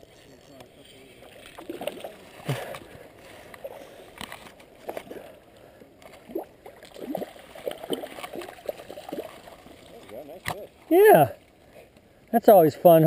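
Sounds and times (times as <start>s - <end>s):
fish splashing in water: 1.4s - 2.9s, 6.0s - 10.7s.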